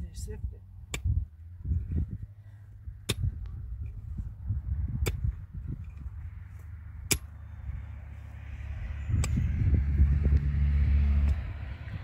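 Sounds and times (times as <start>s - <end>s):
low steady rumble: 0.0s - 12.0s
pick striking stony soil: 0.8s - 2.0s, 3.0s - 7.5s.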